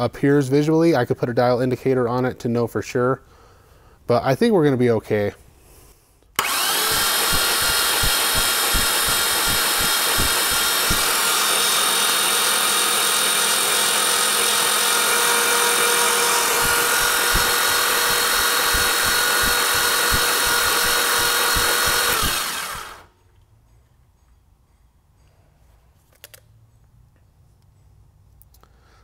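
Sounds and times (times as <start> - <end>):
starter motor cranking engine: 6.4 - 23.1.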